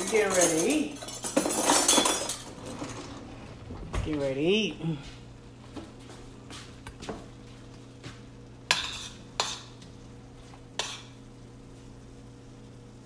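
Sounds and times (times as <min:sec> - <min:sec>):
steady low hum: 0:00.0 - 0:13.0
spoon scraping and clinking on pan: 0:08.7 - 0:09.8, 0:10.8 - 0:11.2.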